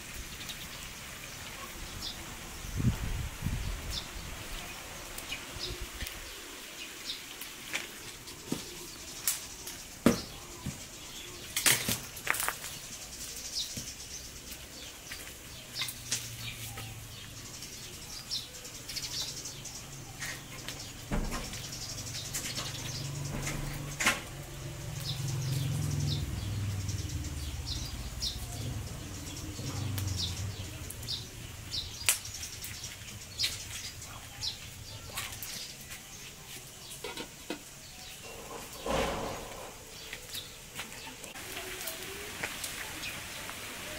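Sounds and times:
wood fire crackling and popping: 5.0s - 18.1s, 18.7s - 37.8s, 38.6s - 43.6s.

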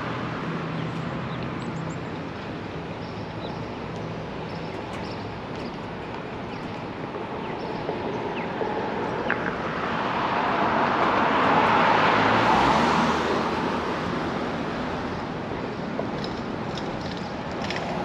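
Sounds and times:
vehicle passing: 7.6s - 15.2s.

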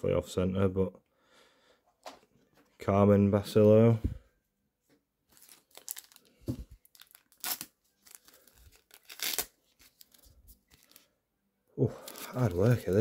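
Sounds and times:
wrapper crinkling and tearing: 5.3s - 11.1s, 12.0s - 13.0s.

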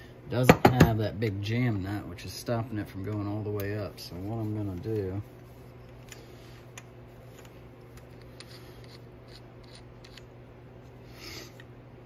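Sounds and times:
steady low hum: 0.0s - 12.0s
metal tool clicks and rubbing: 7.4s - 10.3s.

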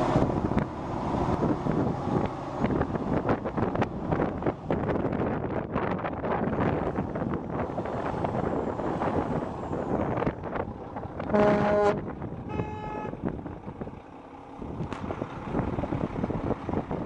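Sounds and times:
diesel engine rumbling: 0.0s - 17.0s
truck horn toot: 11.3s - 13.2s.

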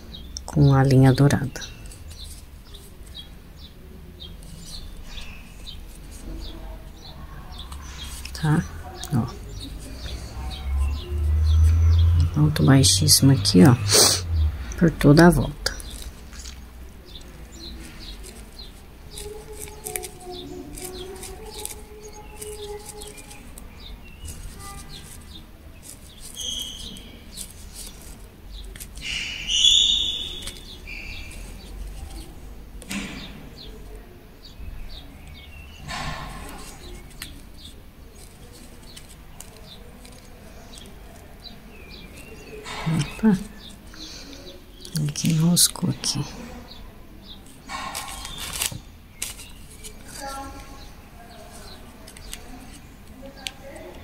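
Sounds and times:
crochet hook ticks and rustles: 18.0s - 23.6s
high bird chirps: 26.1s - 28.0s, 28.6s - 32.1s.

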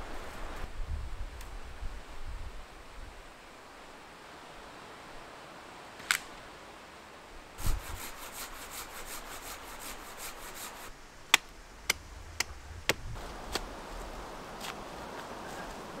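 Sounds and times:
hand saw cutting branch: 7.6s - 11.5s.

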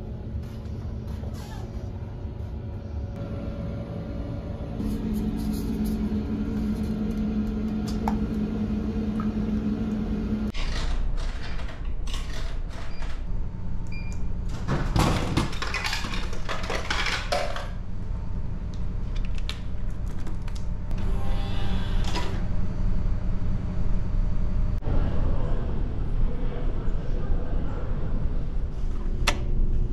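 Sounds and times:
low machine hum: 0.0s - 10.6s, 12.9s - 29.9s.

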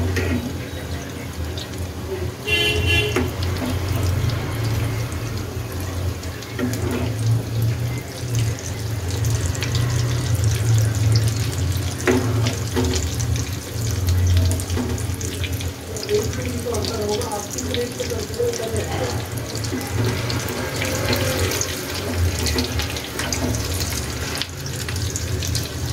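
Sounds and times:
food deep-frying in sizzling oil: 0.0s - 25.9s.

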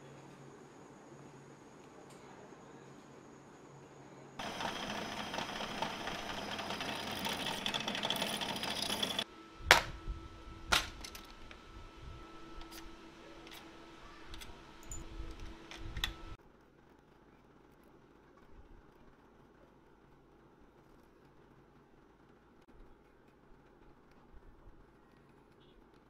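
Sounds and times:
drill press boring through steel: 4.4s - 9.9s
metal tools clicking: 14.3s - 16.3s.

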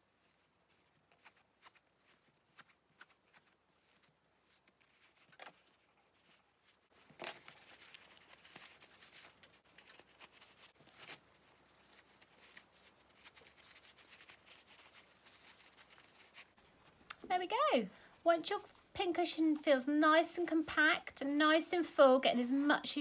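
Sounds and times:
fabric rustling and scraping: 0.0s - 17.0s.

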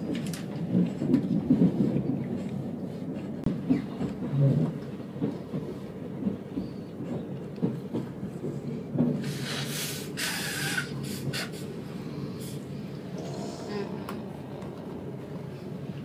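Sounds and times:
train carriage rumbling on track: 0.0s - 16.0s
wheels knocking on rails: 3.2s - 9.4s.

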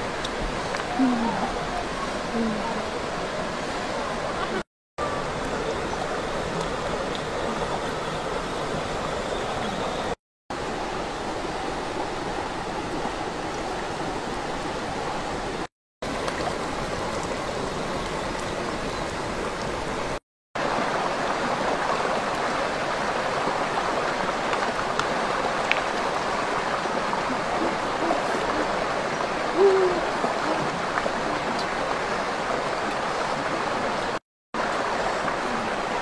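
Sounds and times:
stream rushing over rocks: 0.0s - 36.0s.

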